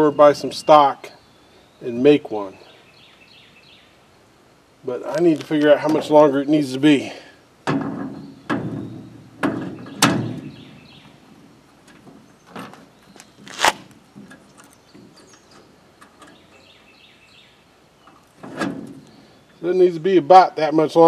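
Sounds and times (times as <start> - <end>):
cart wheel clunking onto axle: 7.6 - 16.8, 18.0 - 19.3.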